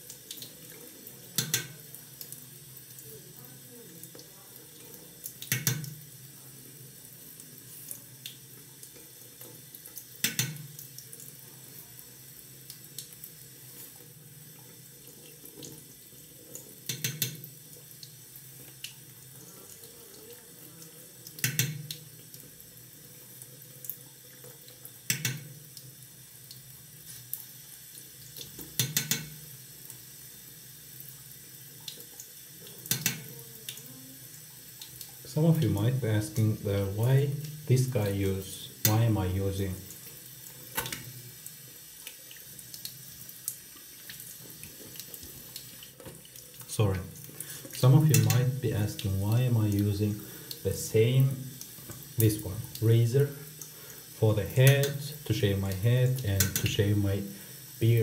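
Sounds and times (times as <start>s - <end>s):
tap running into sink: 1.4s - 1.8s, 5.4s - 6.0s, 10.2s - 10.8s, 16.8s - 17.5s, 21.4s - 22.0s, 25.1s - 25.6s, 28.4s - 29.4s, 32.8s - 33.3s.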